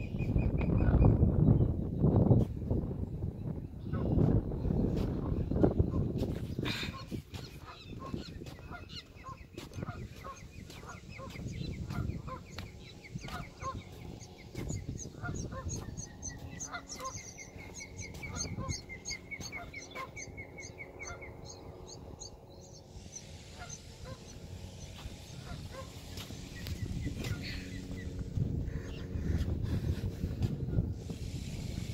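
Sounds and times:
geese honking: 6.8 - 29.5.

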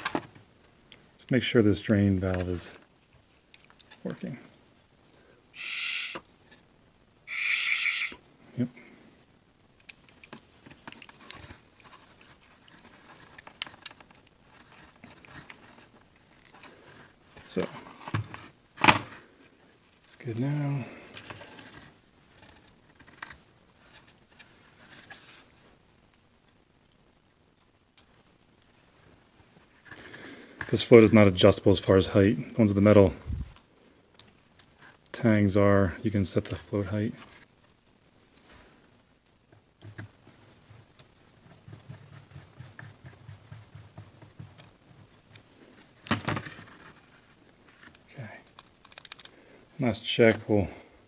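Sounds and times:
small parts clicking and scraping: 9.8 - 18.1, 21.0 - 25.6, 44.3 - 49.4.

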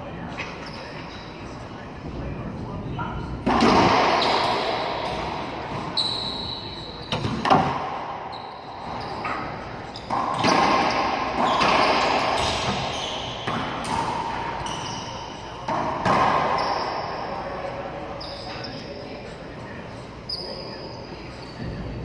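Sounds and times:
sneaker squeaks on hardwood: 0.4 - 1.4, 5.6 - 13.8, 14.4 - 17.3, 18.1 - 19.0, 20.3 - 22.0
racquetball cracks echoing: 3.4 - 17.4.

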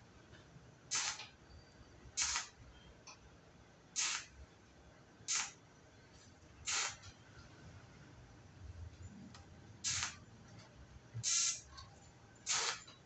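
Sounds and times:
welding torch arc hissing: 0.9 - 1.3, 2.2 - 2.6, 4.0 - 4.4, 5.3 - 5.6, 6.6 - 7.1, 9.8 - 10.2, 11.2 - 11.7, 12.4 - 12.9.

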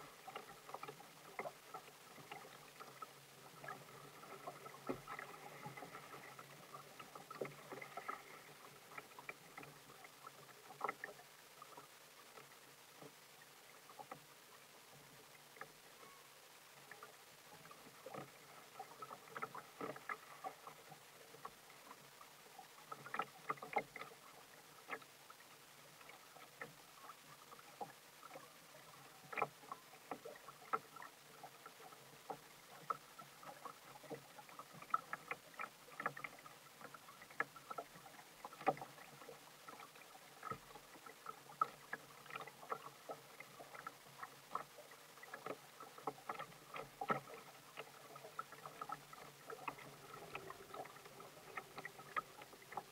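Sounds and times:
waves lapping against kayak hull: 0.0 - 52.9.

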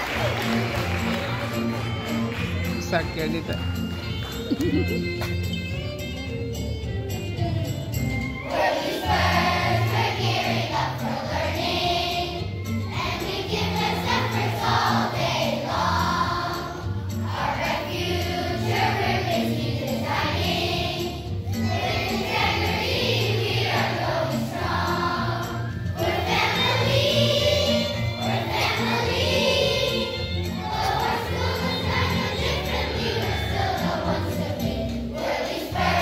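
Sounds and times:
instrumental accompaniment with bass: 0.0 - 36.0
children's choir singing: 8.4 - 36.0.

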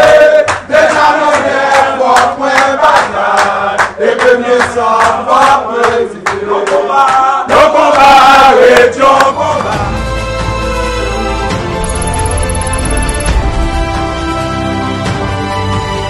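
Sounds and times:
crowd chanting in unison: 0.0 - 10.0.

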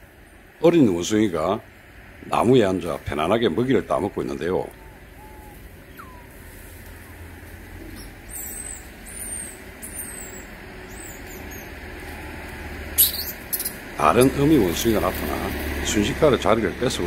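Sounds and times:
low outdoor rumble: 0.0 - 17.0
high bird chirps: 4.7 - 6.4, 7.9 - 11.8, 13.0 - 14.3.

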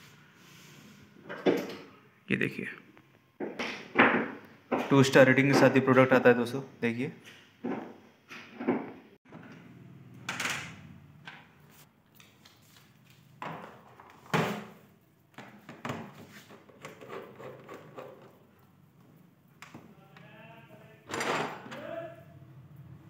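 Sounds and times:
plastic knocks and clunks: 3.4 - 5.9.

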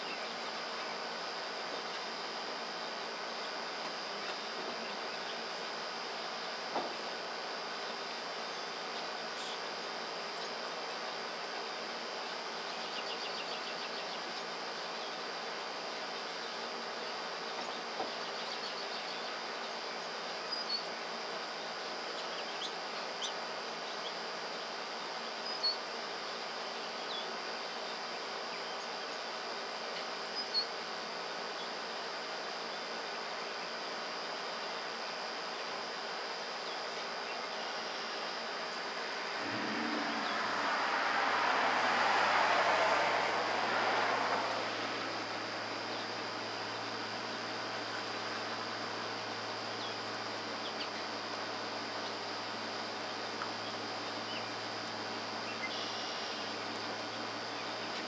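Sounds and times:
insects droning: 0.0 - 58.0
background rumble: 39.4 - 45.6.

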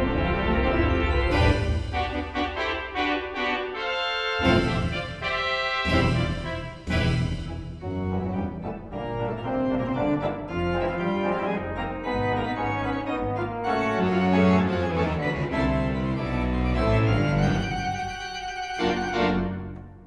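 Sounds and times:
organ-like keyboard chords: 0.0 - 20.0.

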